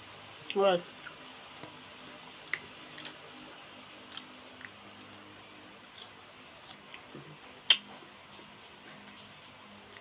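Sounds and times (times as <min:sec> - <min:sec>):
person chewing: 0:00.4 - 0:03.2, 0:04.0 - 0:07.0.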